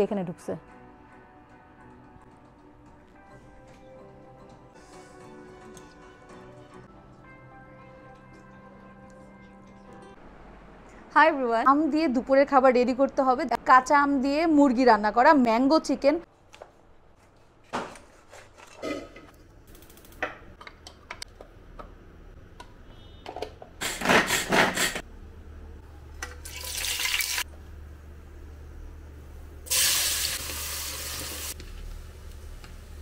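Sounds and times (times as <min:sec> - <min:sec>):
running tap water: 0:26.4 - 0:27.5, 0:29.7 - 0:31.6.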